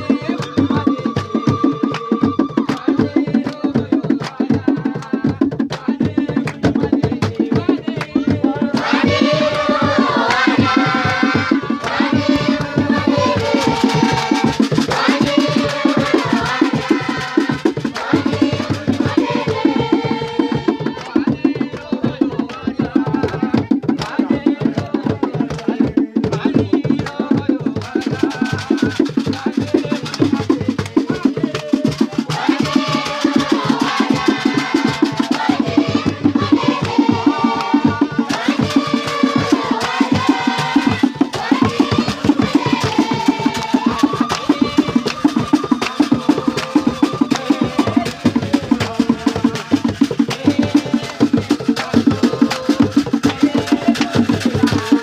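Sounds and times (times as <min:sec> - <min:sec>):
congregation singing: 0:00.0 - 0:55.0
fast steady percussion: 0:00.0 - 0:55.0
hand-clapping: 0:01.8 - 0:04.4, 0:05.7 - 0:06.7, 0:21.0 - 0:23.4, 0:42.8 - 0:48.8.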